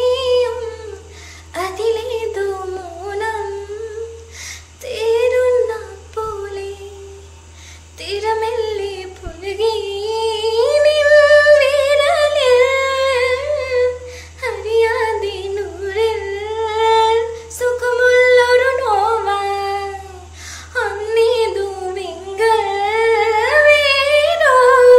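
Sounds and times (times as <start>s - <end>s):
woman singing solo: 8.0s - 24.9s.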